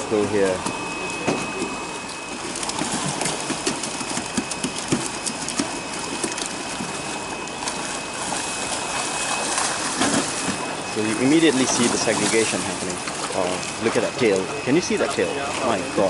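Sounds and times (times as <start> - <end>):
water splashing and sloshing: 0.0 - 16.0
fish thrashing in net: 2.2 - 13.9.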